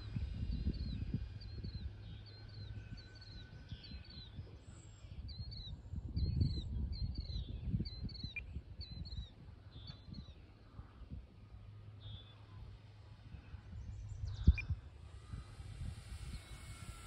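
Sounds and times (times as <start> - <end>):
low rumble: 11.1 - 17.0
songbird chirping: 13.5 - 14.8.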